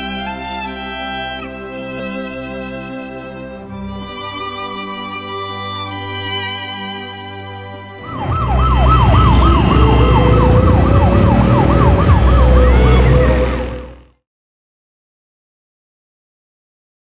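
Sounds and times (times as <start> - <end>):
soft music: 0.0 - 14.0
siren wailing: 8.0 - 14.1
street traffic rumble: 8.0 - 14.1.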